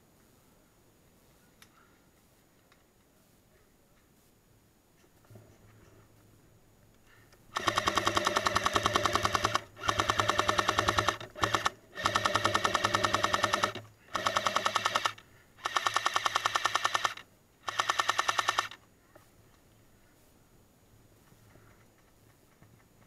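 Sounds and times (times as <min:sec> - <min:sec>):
airsoft machine gun firing bursts: 0:07.5 - 0:18.8.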